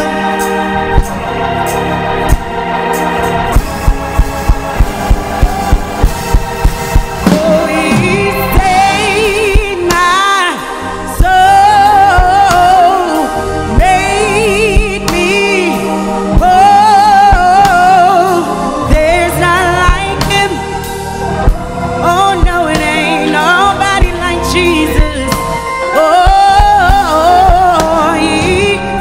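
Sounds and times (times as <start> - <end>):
instrumental backing: 0.0 - 29.0
voices singing gospel: 0.0 - 29.0
sharp beats: 3.5 - 10.2.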